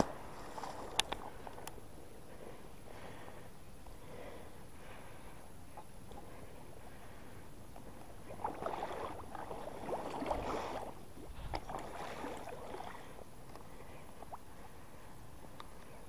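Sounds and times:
water splashing: 0:08.2 - 0:13.2.

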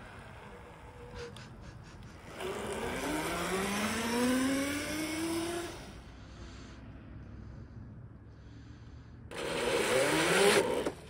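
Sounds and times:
electric motor whining: 0:02.1 - 0:06.1, 0:09.3 - 0:11.0.

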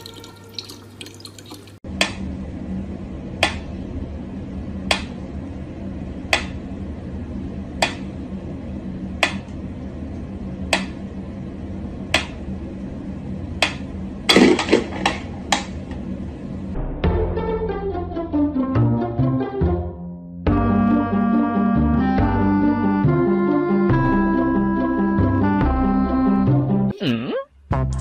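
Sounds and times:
low hum: 0:01.8 - 0:18.4.

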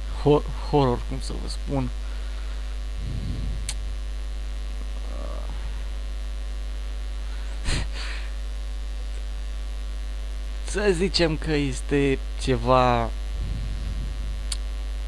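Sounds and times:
electrical mains hum: 0:00.0 - 0:15.0
soft low rumble: 0:02.8 - 0:05.8, 0:13.1 - 0:15.0.

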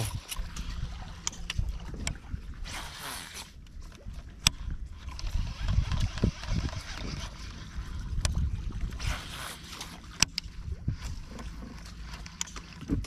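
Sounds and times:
wind rumbling on microphone: 0:00.0 - 0:13.0
fishing reel clicks and knocks: 0:04.4 - 0:08.4, 0:09.8 - 0:11.5, 0:12.1 - 0:12.9.

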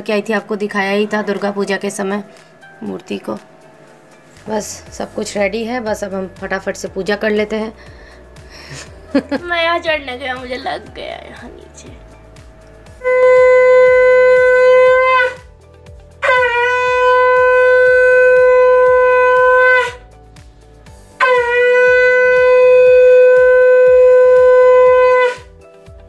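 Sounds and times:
conch shell blasts: 0:12.8 - 0:15.5, 0:16.2 - 0:20.1, 0:21.2 - 0:25.5.

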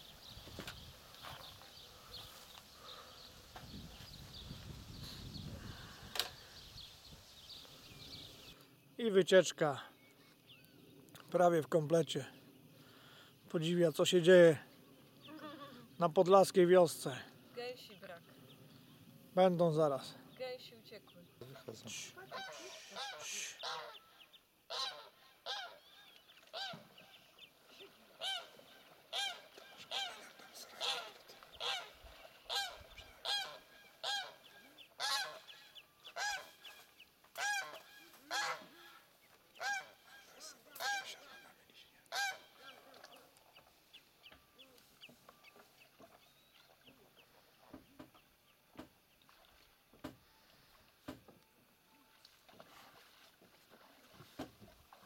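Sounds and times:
geese honking: 0:21.9 - 0:24.0, 0:24.7 - 0:25.8, 0:28.2 - 0:43.0.

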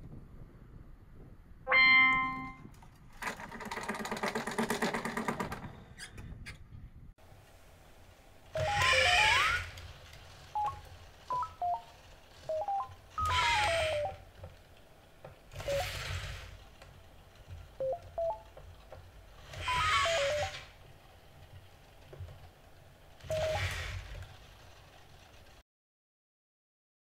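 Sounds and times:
robot electronic beeps: 0:01.7 - 0:02.6, 0:10.6 - 0:11.9, 0:12.5 - 0:12.9, 0:17.8 - 0:18.5
robot joint motors whirring: 0:08.5 - 0:25.6.

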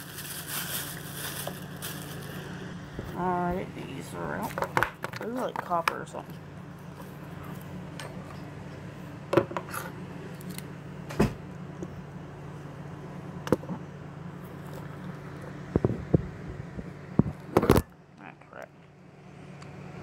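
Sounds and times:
low steady hum: 0:00.0 - 0:20.0.

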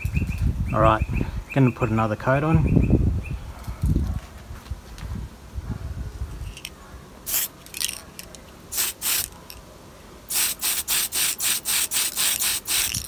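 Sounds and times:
aerosol spray can hissing: 0:07.3 - 0:07.5, 0:08.7 - 0:09.3, 0:10.3 - 0:13.0.

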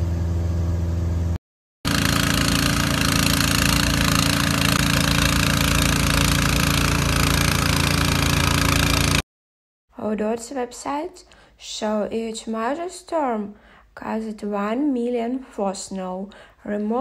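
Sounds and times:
propeller plane engine droning: 0:00.0 - 0:09.2
snowblower engine running: 0:00.0 - 0:09.2.

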